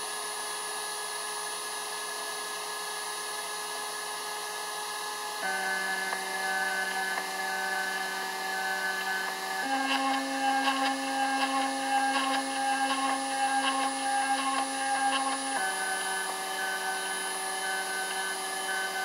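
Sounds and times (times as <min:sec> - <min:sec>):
stepper motors whining: 0:05.4 - 0:19.0.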